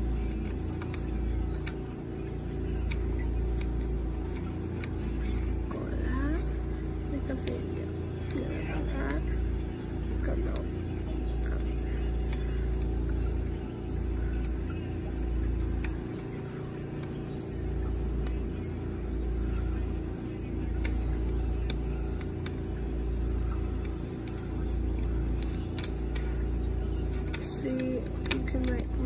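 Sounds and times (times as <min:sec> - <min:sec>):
steady low rumble: 0:00.0 - 0:29.0
plastic links clicking: 0:27.2 - 0:29.0.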